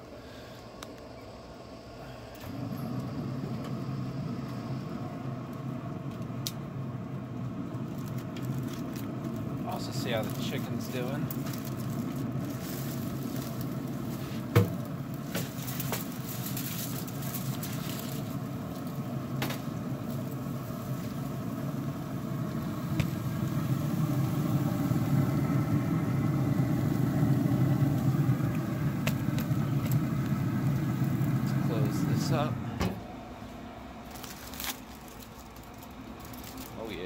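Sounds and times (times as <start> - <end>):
smoker fan humming: 0.0 - 37.0
foil rustling: 7.6 - 37.0.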